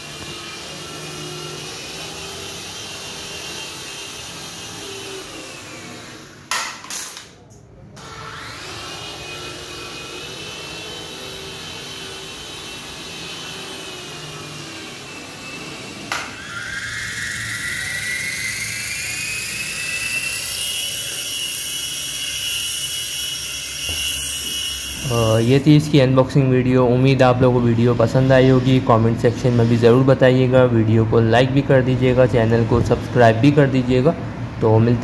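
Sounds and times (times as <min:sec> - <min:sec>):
toy helicopter rotor motors whining: 0:00.0 - 0:06.5, 0:08.0 - 0:26.1.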